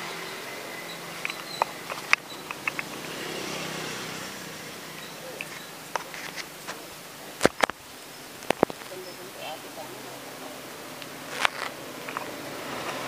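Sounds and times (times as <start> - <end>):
vehicle engine: 0.0 - 13.0
clicks: 1.0 - 3.1, 5.0 - 7.8, 11.0 - 13.0.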